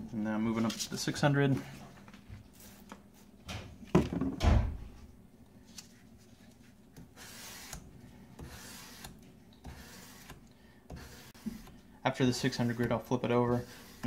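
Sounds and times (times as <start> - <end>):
sandpaper sanding steel: 8.4 - 9.1, 9.7 - 11.7, 12.3 - 14.0
sanding block knocking: 8.4 - 14.0.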